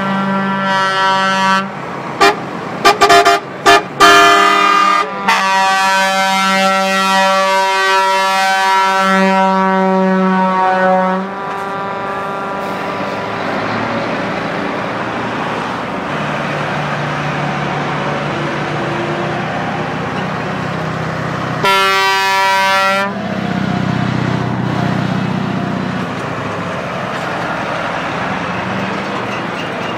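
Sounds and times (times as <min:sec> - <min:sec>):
lorry horn blast: 0:00.0 - 0:13.3, 0:21.6 - 0:23.2
lorries driving past: 0:00.0 - 0:29.9.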